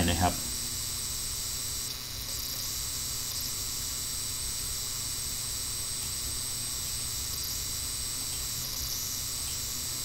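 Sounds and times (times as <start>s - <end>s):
steady background hiss: 0.0s - 10.0s.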